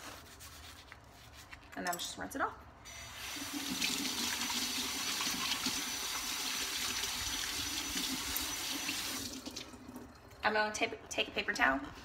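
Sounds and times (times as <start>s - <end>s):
water running from tap: 3.1s - 10.4s.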